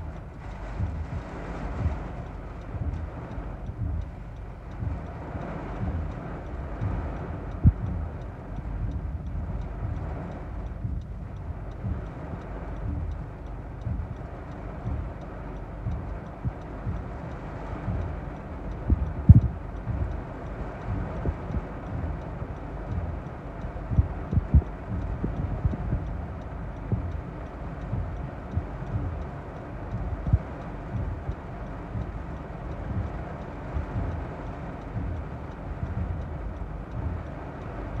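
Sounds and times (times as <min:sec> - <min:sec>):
storm wind gusting against car: 0:00.0 - 0:38.0
torrential rain on windshield: 0:00.0 - 0:38.0.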